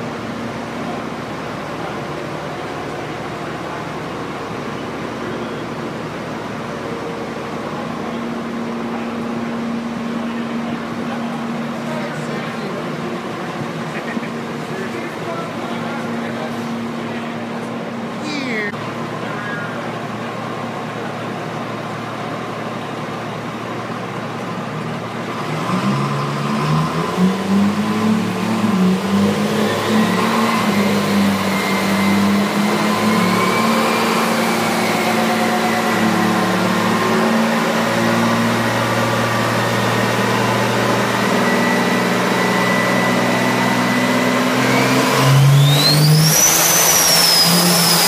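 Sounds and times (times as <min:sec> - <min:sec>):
machinery drone: 0:00.0 - 0:21.1, 0:27.2 - 0:48.0
busy workshop din: 0:00.0 - 0:23.2, 0:24.2 - 0:48.0
diesel engine revving: 0:25.1 - 0:48.0.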